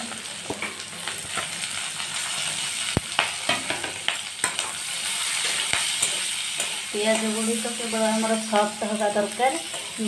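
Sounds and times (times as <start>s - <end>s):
onions sizzling in oil: 0.0s - 10.0s.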